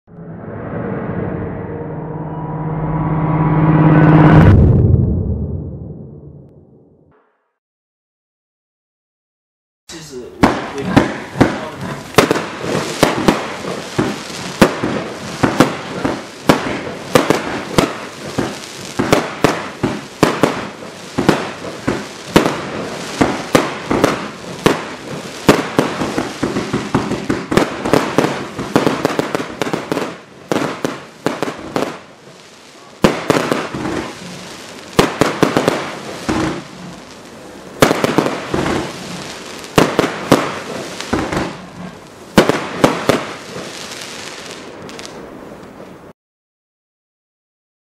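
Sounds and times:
firework cake firing shots: 10.4s - 32.0s, 33.0s - 34.1s, 42.4s - 43.6s
aerial firework bursts: 10.4s - 45.3s.

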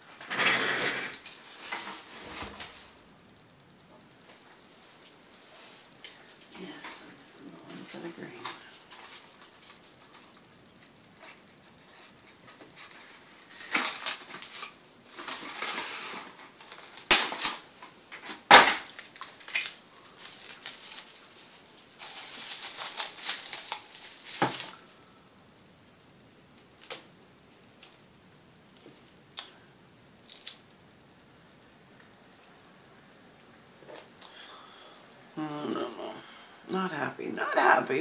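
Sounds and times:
plastic crinkling and rustling: 0.1s - 3.1s, 4.0s - 25.2s.

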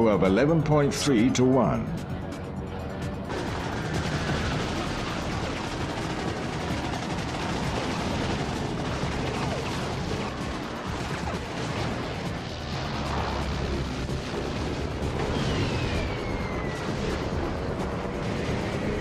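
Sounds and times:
rapid machine-gun fire: 3.3s - 16.0s.

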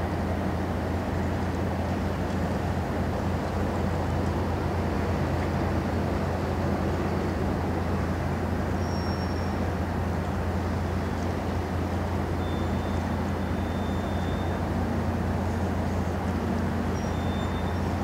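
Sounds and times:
harbour noise: 0.0s - 18.0s
ship engines droning: 0.0s - 18.0s
faint high whistle: 8.8s - 9.6s, 12.4s - 14.6s, 17.0s - 17.8s.

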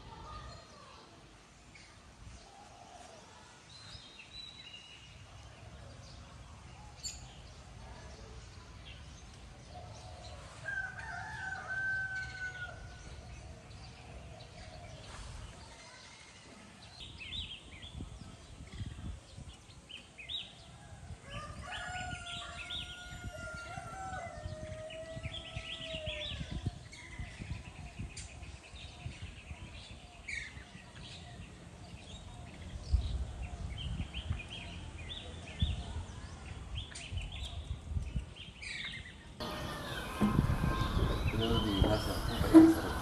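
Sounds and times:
rooster crowing: 10.6s - 12.9s, 39.4s - 43.0s
small birds chirping: 25.4s - 43.0s.

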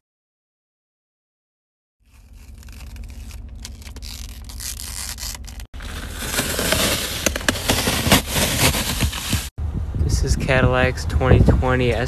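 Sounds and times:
plastic film crackling and rustling: 2.1s - 9.5s.

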